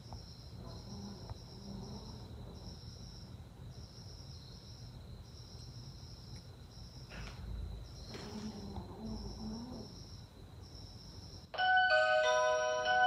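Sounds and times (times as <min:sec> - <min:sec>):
insect-like chirping: 0:00.0 - 0:11.6
soft rustle: 0:07.1 - 0:09.2
thin steady high tone: 0:10.9 - 0:13.0.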